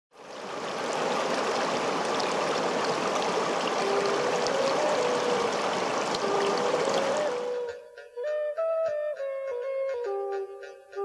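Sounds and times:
stream rushing over rocks: 0:00.2 - 0:07.7
slow melody of held notes: 0:03.8 - 0:11.0.

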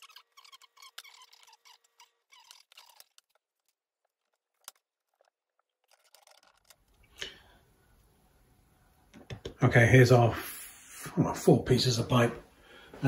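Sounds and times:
plastic pipes clicking and rustling: 0:00.0 - 0:07.2.

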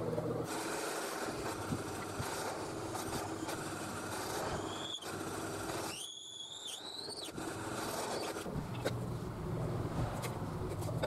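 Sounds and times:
drill press humming: 0:00.0 - 0:08.5.

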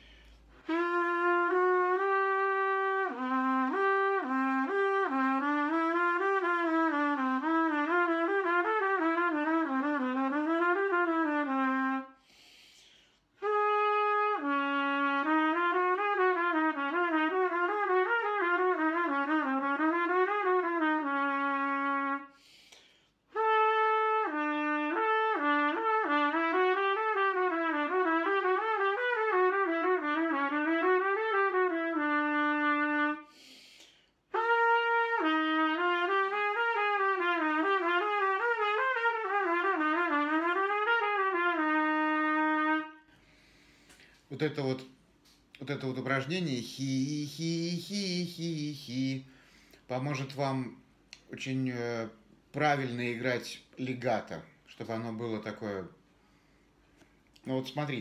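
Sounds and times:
short breath: 0:00.0 - 0:00.6, 0:12.2 - 0:13.4, 0:22.3 - 0:23.3, 0:33.2 - 0:34.3, 0:43.0 - 0:44.3, 0:49.2 - 0:49.9, 0:56.1 - 0:57.3.

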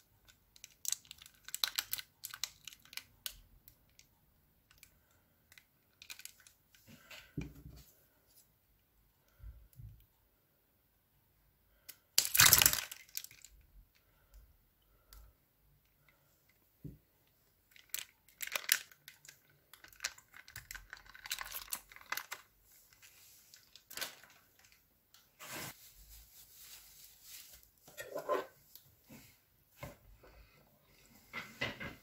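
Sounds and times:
slime squelching and popping: 0:12.2 - 0:13.4.

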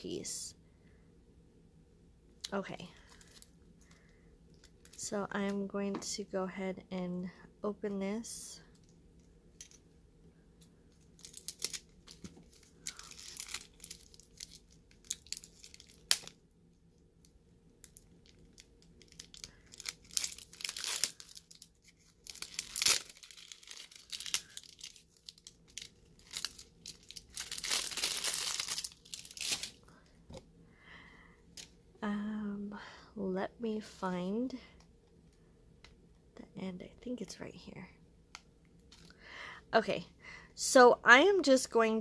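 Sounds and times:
plastic wrapping crinkling and tearing: 0:02.8 - 0:03.6, 0:04.6 - 0:05.1, 0:11.0 - 0:16.4, 0:17.8 - 0:29.8.

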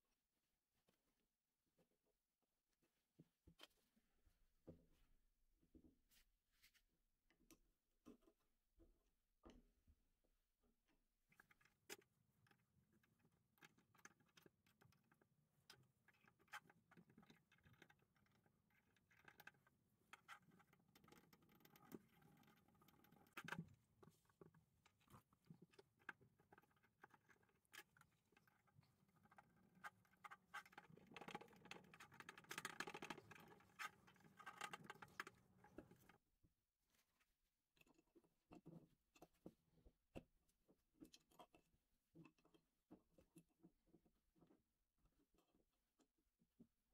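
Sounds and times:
small metal clicks and scrapes: 0:11.3 - 0:36.2.

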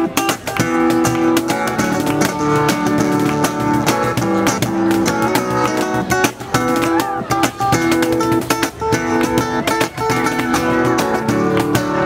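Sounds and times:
acoustic guitar strumming: 0:00.0 - 0:12.0
hand strikes on cajon: 0:00.0 - 0:12.0.

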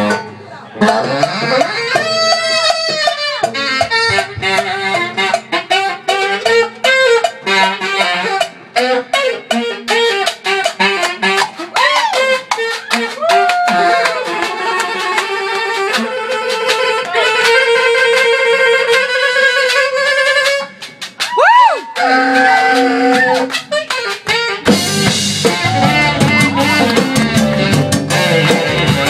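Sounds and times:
drum hits: 0:00.0 - 0:05.5, 0:24.3 - 0:29.0
band playing: 0:00.0 - 0:29.0
saxophone solo: 0:00.0 - 0:29.0.

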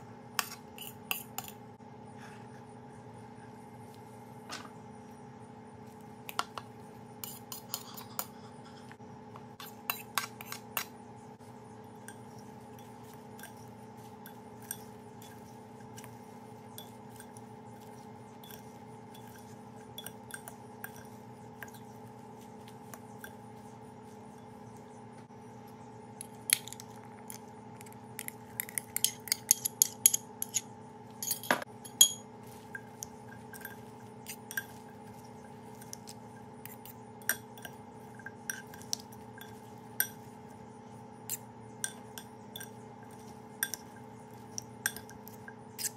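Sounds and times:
faint steady hum: 0:00.0 - 0:45.9
utensils clinking on glass bowl: 0:12.0 - 0:22.0, 0:22.6 - 0:23.7, 0:28.2 - 0:40.4, 0:41.3 - 0:45.9.

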